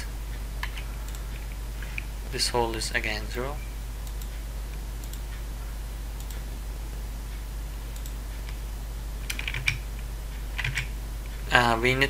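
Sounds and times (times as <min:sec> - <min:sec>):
low electrical hum: 0:00.0 - 0:12.0
keyboard typing: 0:09.2 - 0:09.8, 0:10.6 - 0:10.9.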